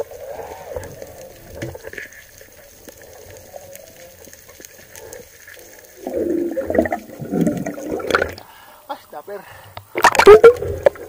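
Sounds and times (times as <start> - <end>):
faint clicks: 0.0 - 6.3
water rushing and bubbling: 0.0 - 8.5, 9.9 - 11.0
muffled underwater hiss: 0.0 - 11.0.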